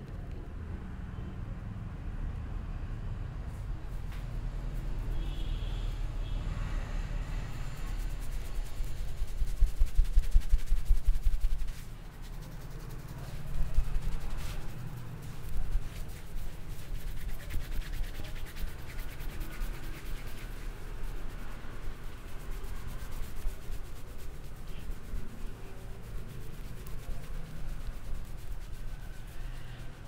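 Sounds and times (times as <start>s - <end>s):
fingers rubbing through hair: 6.6s - 30.0s.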